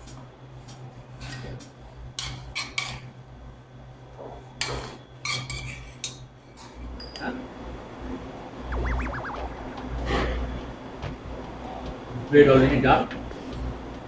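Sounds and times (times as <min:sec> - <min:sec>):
steady low hum: 0:07.6 - 0:12.3.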